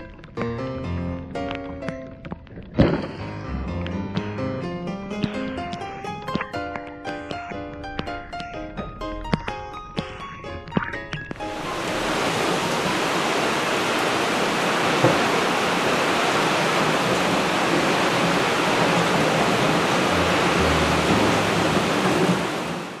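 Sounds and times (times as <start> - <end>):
heavy rain: 11.4 - 23.0.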